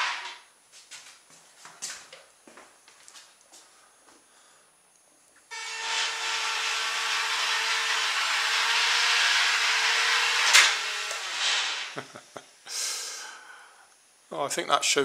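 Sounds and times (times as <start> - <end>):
small electric motors whining: 5.5 - 12.0.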